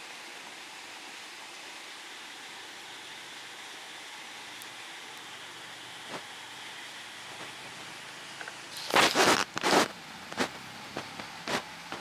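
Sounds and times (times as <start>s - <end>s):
steady background hiss: 0.0s - 12.0s
rustling and scraping: 8.4s - 12.0s.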